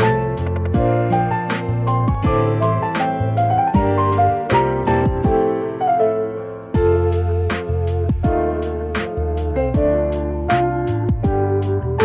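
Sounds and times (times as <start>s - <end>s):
instrumental background music: 0.0s - 12.0s.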